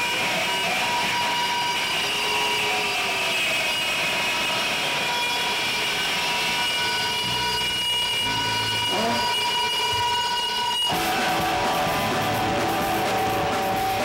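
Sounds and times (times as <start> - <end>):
high feedback tones: 0.0 - 14.0
roar of guitar distortion: 6.0 - 14.0
low bass notes: 10.9 - 14.0.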